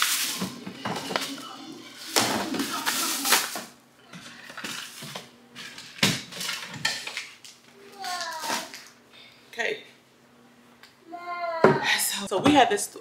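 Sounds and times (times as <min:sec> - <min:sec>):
household items knocking and clattering: 0:00.0 - 0:01.4, 0:02.1 - 0:07.3.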